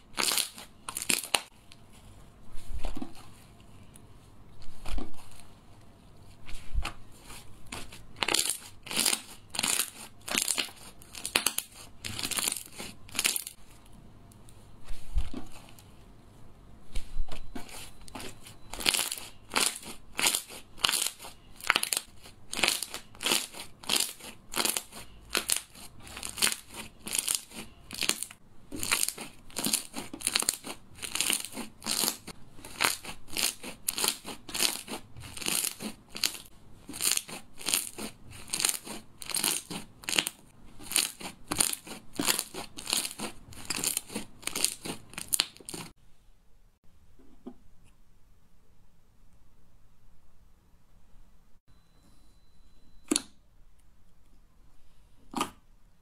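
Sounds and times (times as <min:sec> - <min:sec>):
slime crackly squishes: 0:00.0 - 0:01.9, 0:06.4 - 0:13.8, 0:17.6 - 0:45.9.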